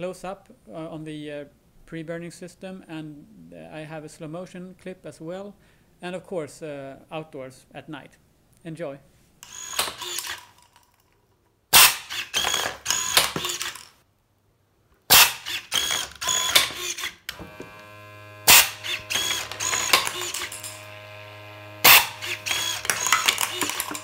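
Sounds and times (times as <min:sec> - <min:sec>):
rapid mechanical clicking and ratcheting: 0:15.4 - 0:24.0
brief mechanical whine: 0:15.7 - 0:24.0
pump humming: 0:17.3 - 0:24.0.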